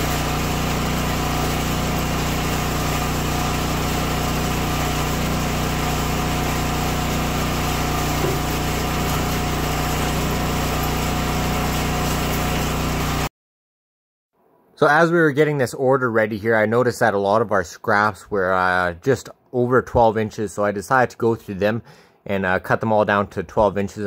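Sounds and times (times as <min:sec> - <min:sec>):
small engine running: 0:00.0 - 0:13.3.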